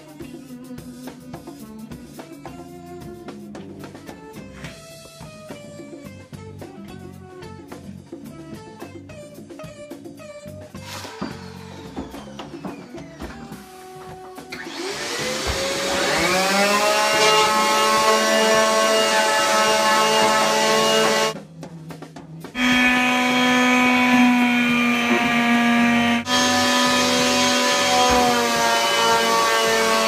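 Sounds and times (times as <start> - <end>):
paint sprayer motor whining: 14.5 - 21.4.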